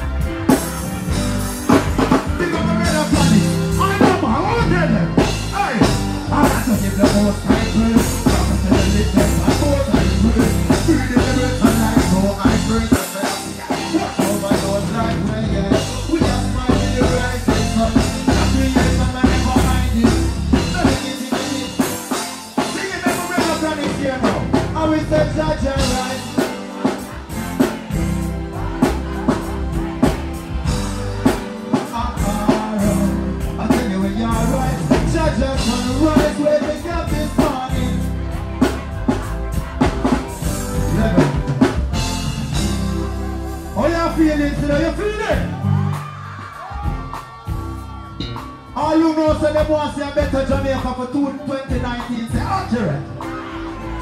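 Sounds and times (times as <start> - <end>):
live reggae band: 0.0 - 54.0
man singing through pa: 2.3 - 41.8.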